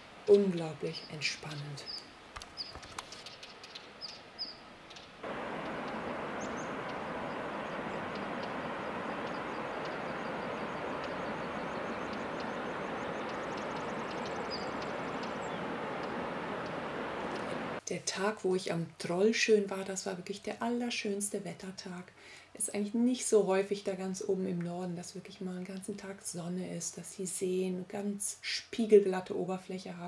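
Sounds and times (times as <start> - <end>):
high bird chirps: 2.6 - 17.6
steady rushing noise: 5.2 - 17.8.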